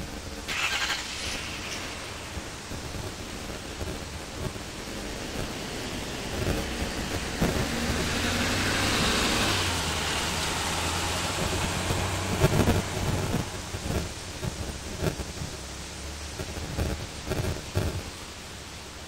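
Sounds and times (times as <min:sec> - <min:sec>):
low engine hum: 0:00.0 - 0:18.6
wind rumbling on microphone: 0:00.0 - 0:19.0
truck driving past: 0:07.2 - 0:13.7.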